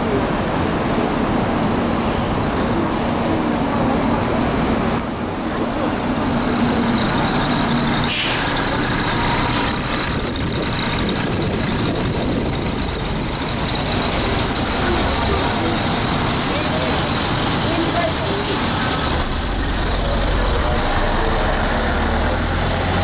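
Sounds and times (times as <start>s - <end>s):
bus diesel engine running: 0.0s - 23.0s
air brake hiss: 2.0s - 2.3s, 8.0s - 8.8s, 18.4s - 18.9s.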